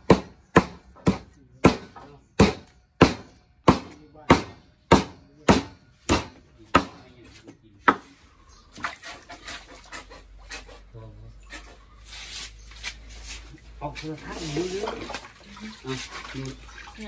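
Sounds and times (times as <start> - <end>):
cleaver chopping on wooden block: 0.0 - 7.0, 7.8 - 8.1.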